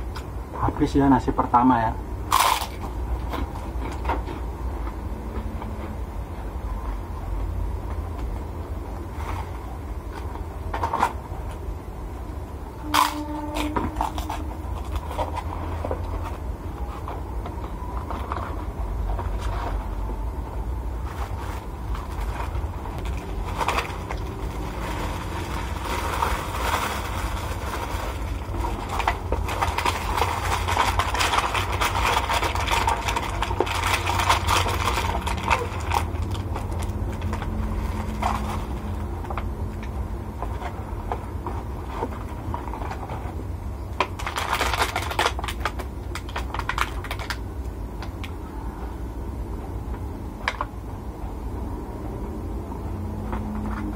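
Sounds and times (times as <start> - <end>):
steady low hum: 0.0 - 53.9
packaging rustling and crinkling: 21.0 - 47.4.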